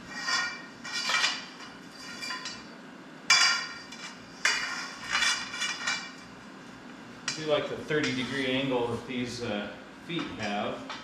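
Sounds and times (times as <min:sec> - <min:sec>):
steel parts clanking: 0:00.1 - 0:02.7, 0:03.3 - 0:06.2.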